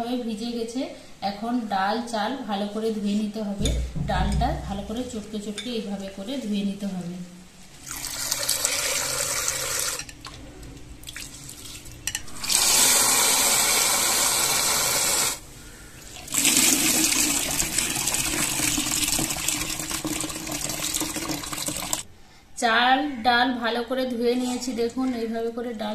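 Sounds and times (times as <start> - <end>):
water splashing in steel bowl: 16.0 - 22.0.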